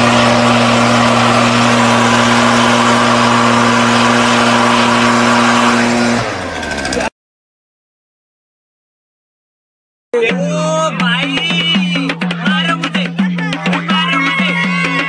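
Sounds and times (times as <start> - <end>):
leaf blower engine running: 0.0 - 7.1.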